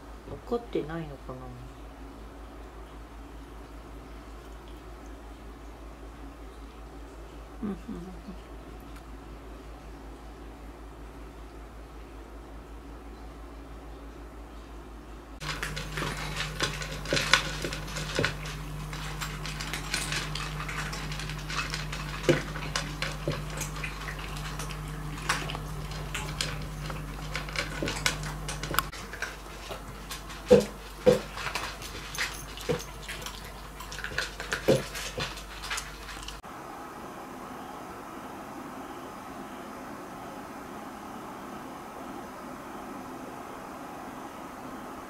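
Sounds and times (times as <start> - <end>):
cat crunching dry kibble: 15.4 - 36.4.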